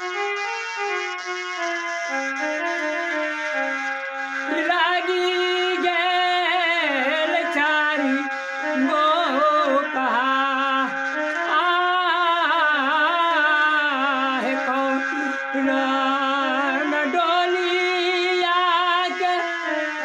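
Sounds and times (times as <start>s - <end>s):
instrumental melody of held notes: 0.0s - 20.0s
man singing folk song: 11.6s - 19.2s.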